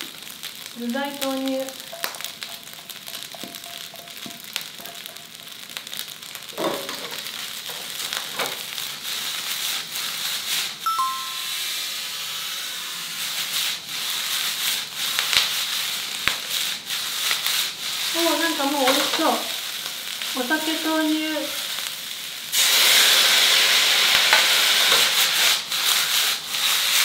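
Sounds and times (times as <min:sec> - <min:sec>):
rice sizzling in a wok: 0:00.0 - 0:27.0
brief bright ring: 0:10.9 - 0:11.7.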